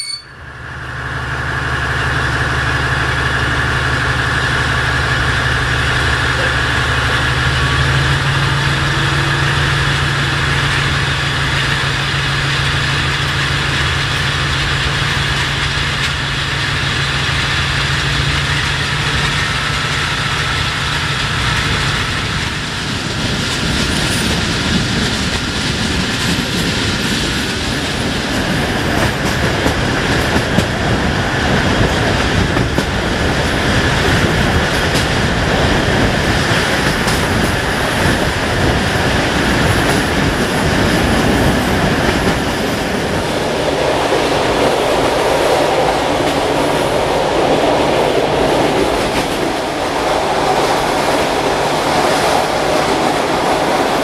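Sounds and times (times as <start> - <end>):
diesel engine hum with whine: 0.0 - 19.7
train wheels clicking on rails: 0.2 - 54.0.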